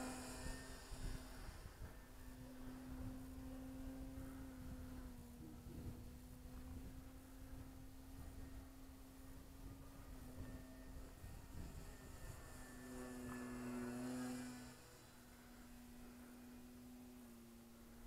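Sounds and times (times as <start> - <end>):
distant model airplane motor hum: 0.0 - 18.0.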